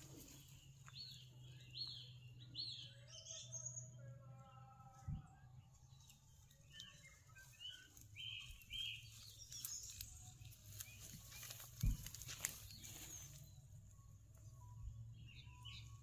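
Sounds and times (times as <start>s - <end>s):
rustling of leaves and grass: 0.0s - 2.0s, 5.8s - 14.5s
birds chirping: 0.0s - 16.0s.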